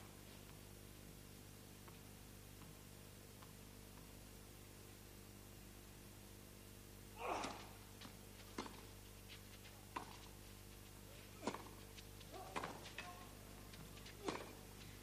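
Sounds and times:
faint steady hum: 0.0s - 15.0s
racket hitting tennis ball: 8.5s - 8.9s, 9.9s - 10.2s, 11.4s - 13.2s, 14.2s - 14.6s.

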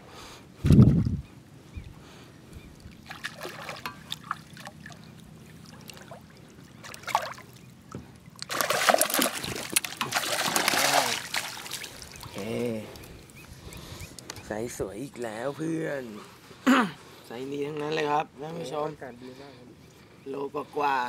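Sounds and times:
fish splashing water: 2.8s - 12.4s.

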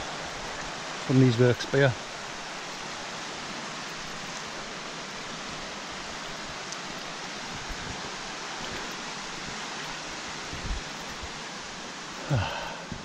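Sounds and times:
river rushing: 0.0s - 13.0s.

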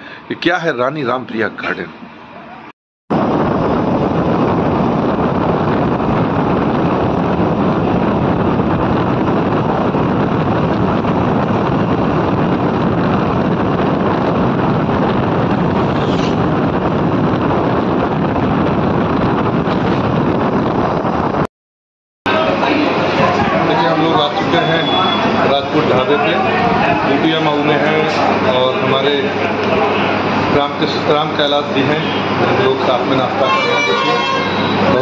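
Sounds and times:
vehicle running noise: 1.0s - 21.4s
wind buffeting microphone: 3.1s - 21.5s.

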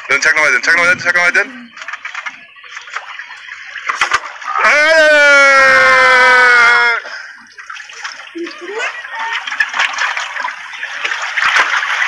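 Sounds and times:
water splashing and streaming: 0.0s - 12.0s.

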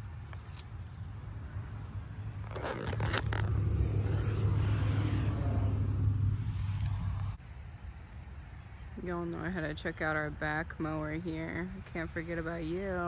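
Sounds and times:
twigs scraping against clothing: 0.0s - 4.1s
steady low rumble: 0.8s - 12.5s.

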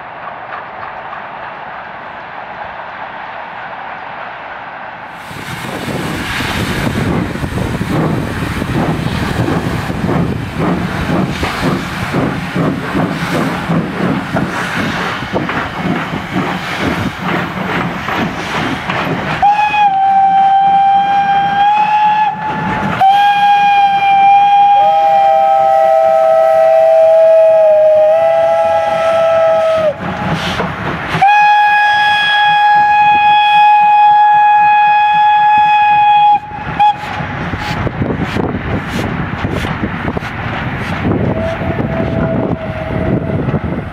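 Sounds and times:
train rumbling and clattering: 0.0s - 43.9s
steam locomotive whistle blasts: 19.4s - 30.0s, 31.2s - 37.2s, 41.3s - 43.4s.

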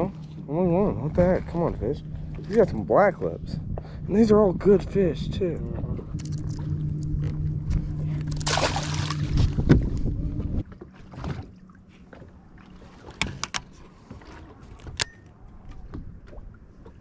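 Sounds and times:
light knocks and clicks on boat: 0.0s - 2.9s, 5.6s - 8.5s, 9.2s - 17.0s
electric boat motor humming: 0.0s - 13.6s.

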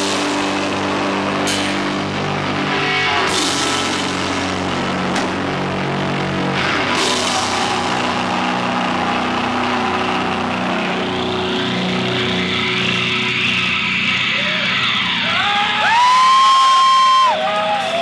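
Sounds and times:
distorted guitar chord drone: 0.0s - 15.6s
crowd whooping: 6.6s - 18.0s.

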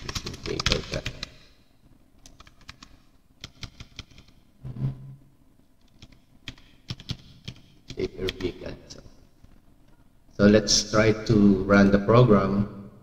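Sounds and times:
computer keyboard keys clicking: 0.0s - 1.4s, 2.2s - 4.4s, 5.8s - 8.6s.

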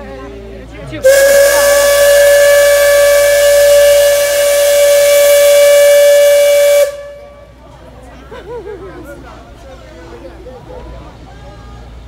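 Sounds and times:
steam hissing: 1.0s - 7.3s
steam whistle blast: 1.0s - 7.4s.

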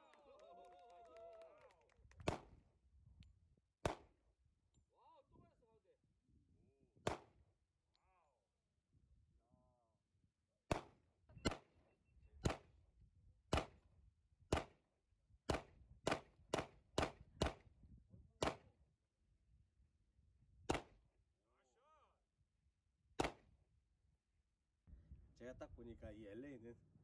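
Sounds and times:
handgun shots: 3.8s - 4.1s, 10.7s - 11.7s, 12.4s - 12.7s, 13.5s - 13.8s, 14.5s - 14.8s, 15.5s - 17.6s, 18.4s - 18.7s, 20.7s - 21.0s, 23.2s - 23.5s.

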